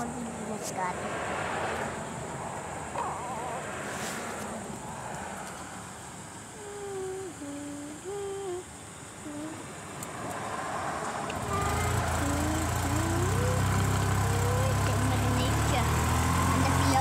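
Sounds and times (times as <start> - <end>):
golf cart rumble: 0.0 - 17.0
person humming: 6.5 - 9.7, 11.3 - 15.0.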